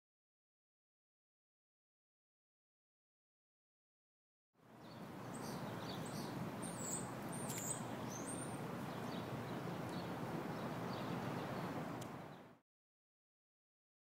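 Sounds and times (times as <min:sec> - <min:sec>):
outdoor background rumble: 0:04.6 - 0:12.6
small birds chirping: 0:04.7 - 0:12.6.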